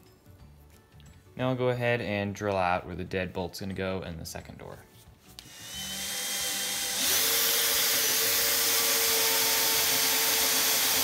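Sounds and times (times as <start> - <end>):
drill boring into wood: 5.4 - 11.0.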